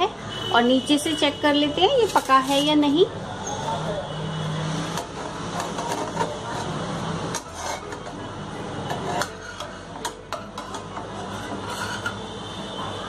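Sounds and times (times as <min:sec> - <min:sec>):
metal spatula scraping a pan: 0:01.9 - 0:02.9, 0:04.9 - 0:12.6.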